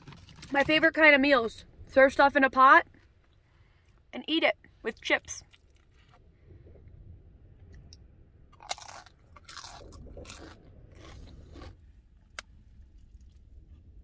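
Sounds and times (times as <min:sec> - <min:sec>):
person crunching chips: 0:08.6 - 0:11.8.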